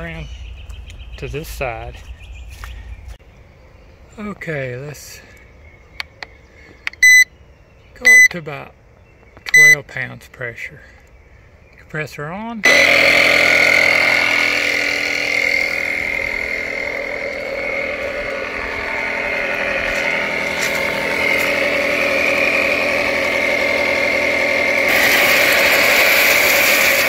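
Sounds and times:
air compressor running: 12.6 - 27.0.

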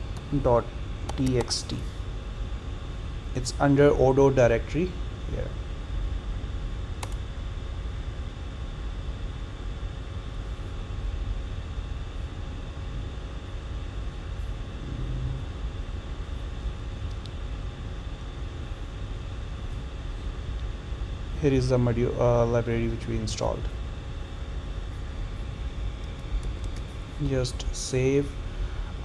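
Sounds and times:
low background rumble: 0.0 - 29.0
computer key click: 1.1 - 1.5, 7.0 - 7.2.

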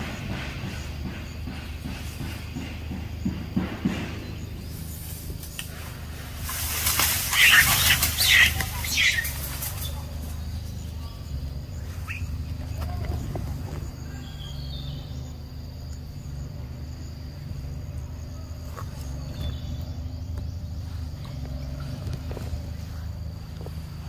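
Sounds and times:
steady low rumble: 0.0 - 7.3
bird chirp: 0.0 - 24.0
insects trilling: 0.0 - 24.0.

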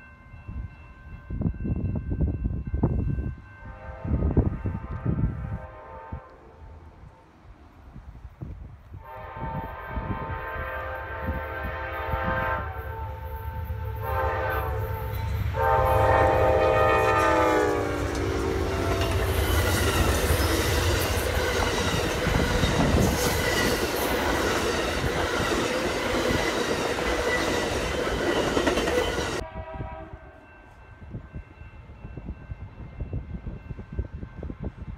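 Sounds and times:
train air horn blasts: 3.6 - 7.3, 8.9 - 26.4, 29.0 - 30.8.

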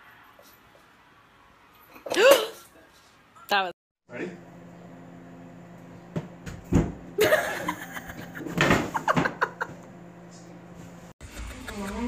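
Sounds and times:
person laughing: 7.2 - 9.8
thump and crash: 8.5 - 9.4.

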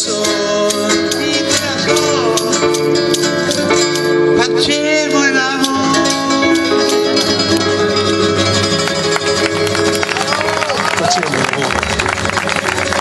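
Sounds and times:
acoustic guitar: 0.0 - 13.0
keyboard: 0.0 - 13.0.

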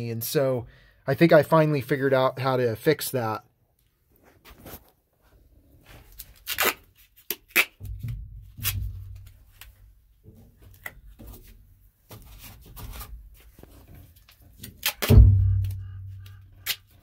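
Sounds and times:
paper and tape rustling: 5.8 - 9.8, 10.6 - 15.1.

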